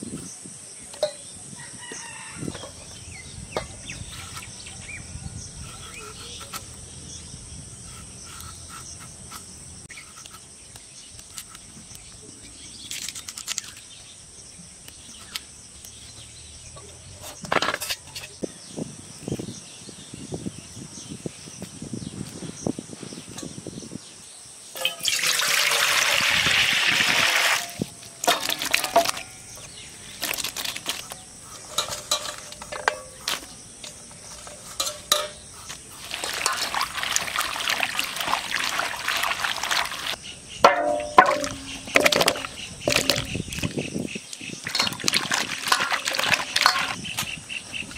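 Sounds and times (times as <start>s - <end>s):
water poured into steel bowl: 24.8s - 29.3s, 36.0s - 40.2s, 44.7s - 47.0s
splashing and knocking in water: 24.8s - 31.1s, 34.3s - 43.8s, 44.6s - 47.2s.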